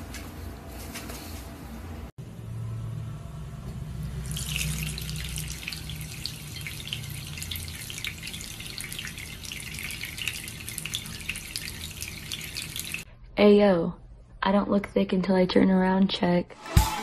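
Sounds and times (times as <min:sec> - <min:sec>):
water splashing from tap: 0:04.0 - 0:13.1.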